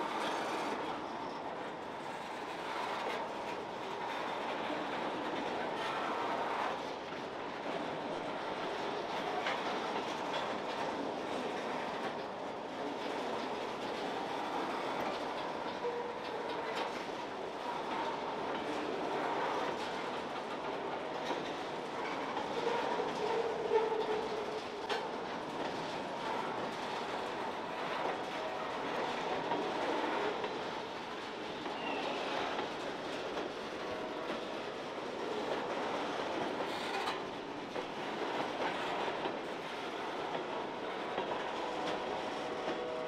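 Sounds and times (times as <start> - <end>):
train wheels rumbling on rails: 0.0 - 43.0
track creaking: 13.1 - 43.0
clicks over rail joints: 35.2 - 43.0.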